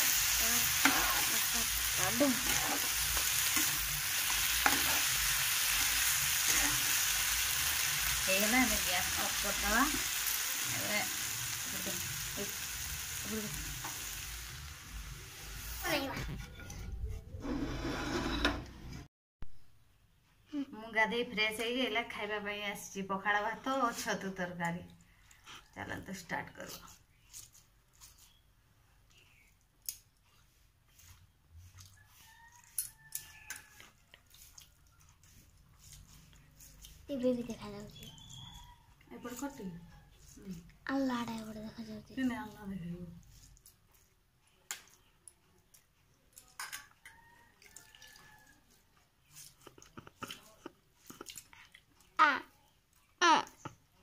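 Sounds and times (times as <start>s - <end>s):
curry sizzling in frying pan: 0.0s - 16.1s.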